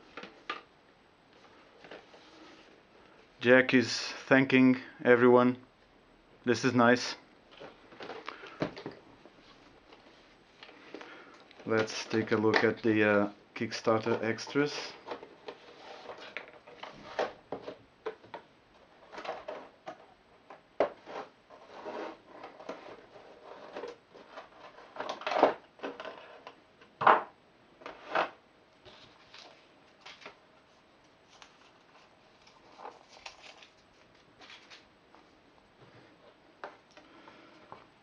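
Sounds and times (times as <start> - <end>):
rustling of card and plastic: 7.5 - 20.2, 20.9 - 26.6, 27.9 - 35.4.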